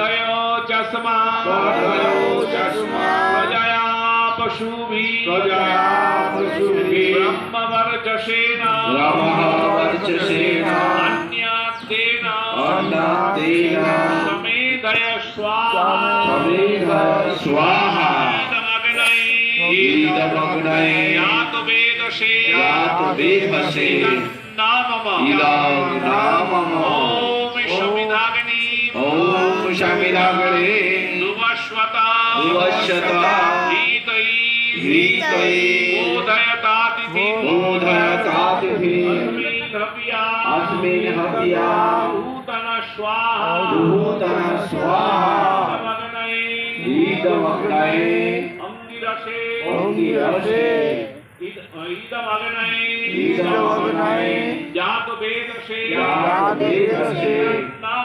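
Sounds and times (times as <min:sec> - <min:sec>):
men chanting melodically: 0:00.0 - 0:58.0.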